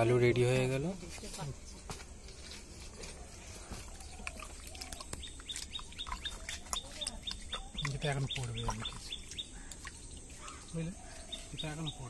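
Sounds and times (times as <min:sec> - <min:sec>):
small bird chirping: 0:03.0 - 0:12.0.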